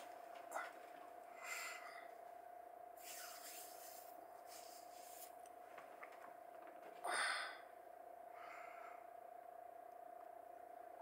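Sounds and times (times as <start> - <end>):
faint steady whine: 0.0 - 11.0
person breathing: 0.5 - 2.2, 7.0 - 9.1.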